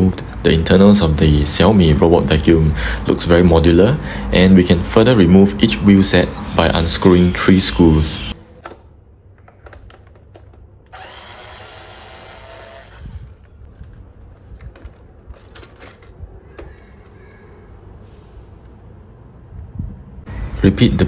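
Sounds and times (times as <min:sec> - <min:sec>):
clicks and knocks of handling: 0:08.6 - 0:10.8, 0:13.7 - 0:17.2
electric screwdriver running: 0:10.9 - 0:13.5.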